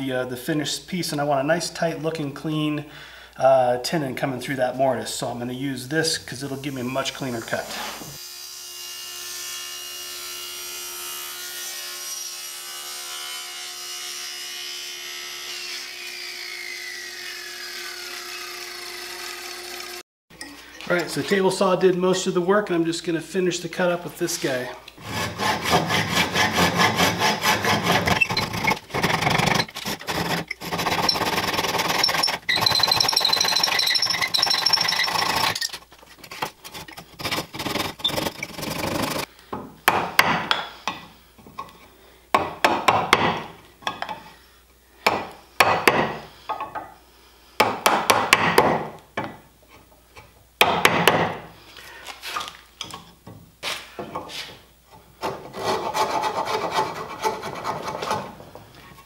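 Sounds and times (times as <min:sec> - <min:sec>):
handsaw cutting wood: 0:06.4 - 0:20.0, 0:25.0 - 0:39.3, 0:55.2 - 0:58.4
chisel paring wood: 0:25.2 - 0:41.1, 0:42.3 - 0:44.1, 0:45.0 - 0:46.6, 0:47.6 - 0:49.4, 0:50.6 - 0:51.4.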